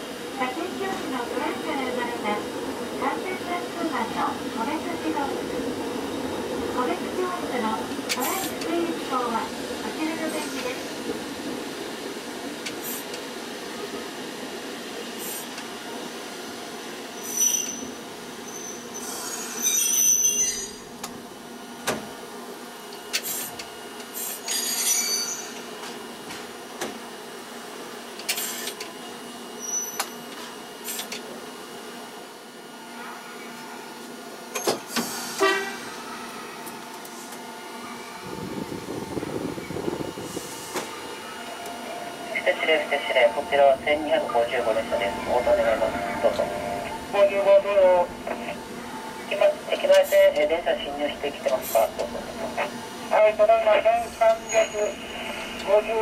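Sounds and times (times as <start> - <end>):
tram running hum: 0.0 - 56.0
high thin wheel squeal: 17.2 - 20.9, 24.5 - 25.6, 29.6 - 30.1, 54.5 - 55.0
short horn toot: 35.4 - 35.9
wheels rumbling on rails: 38.2 - 53.1.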